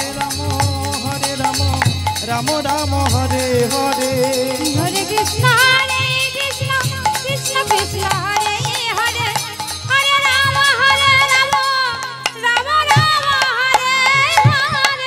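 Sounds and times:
drum beating rhythm: 0.0 - 15.0
hand cymbals clashing: 0.0 - 15.0
harmonium: 0.0 - 15.0
woman singing ornamented melody: 4.7 - 15.0.

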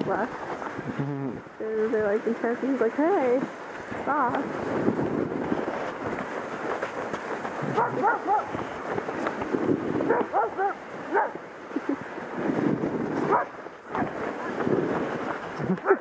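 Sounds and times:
wind noise: 0.0 - 16.0
dogs barking and yipping: 7.6 - 8.6, 10.1 - 11.4, 13.3 - 14.1, 15.8 - 16.0.

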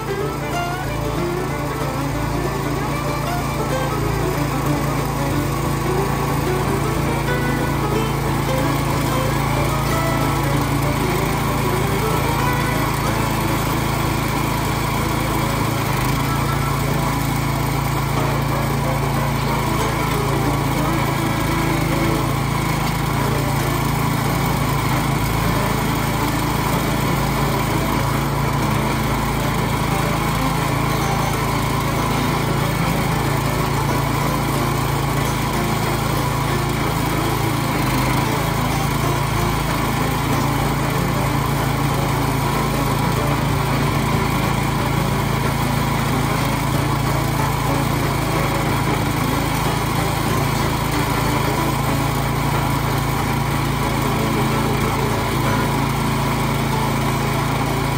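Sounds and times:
small gasoline engine running: 0.0 - 57.9.

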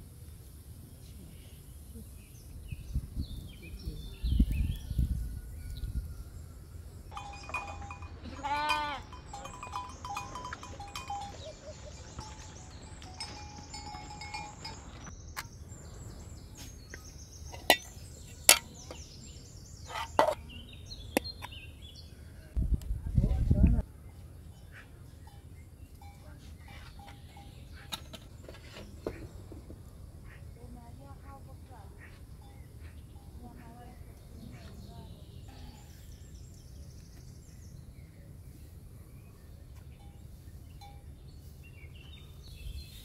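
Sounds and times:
goats bleating: 8.2 - 9.1.

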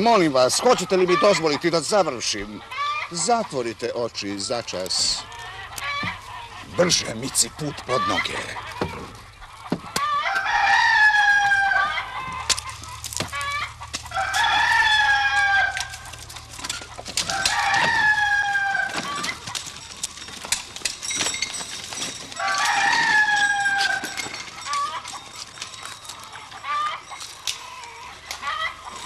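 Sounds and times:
rooster crowing: 9.7 - 16.2, 17.2 - 19.6, 22.3 - 25.2.

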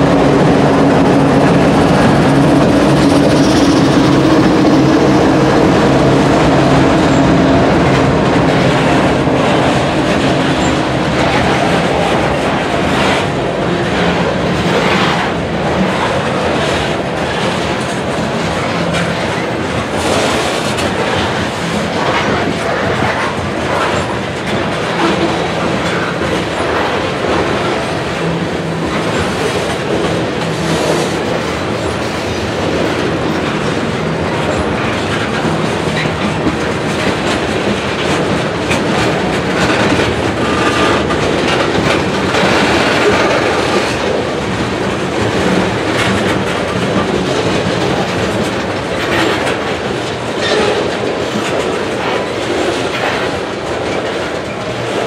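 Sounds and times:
freight train rumble: 0.0 - 55.0
train wheels clicking over rail joints: 0.0 - 55.0.

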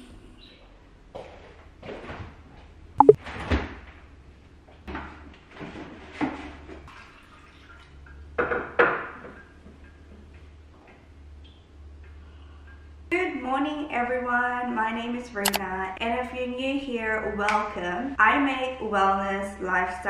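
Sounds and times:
water poured into a glass: 6.9 - 7.9.

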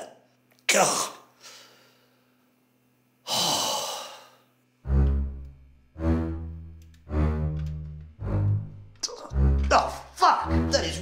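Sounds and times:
low bowed strings film score: 4.8 - 11.0.

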